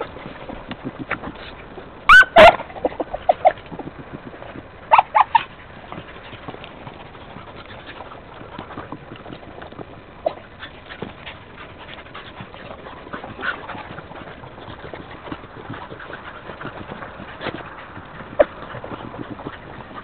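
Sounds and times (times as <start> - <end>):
rustling: 0.0 - 20.0
dog barking: 2.1 - 3.6
dog yelping: 2.1 - 3.6, 4.9 - 5.6, 10.2 - 10.8, 17.3 - 20.0.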